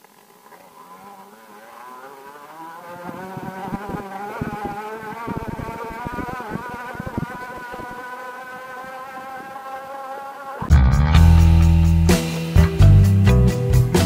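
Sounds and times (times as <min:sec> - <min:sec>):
small engine revving: 0:00.0 - 0:12.8
wind buffeting microphone: 0:03.1 - 0:08.0.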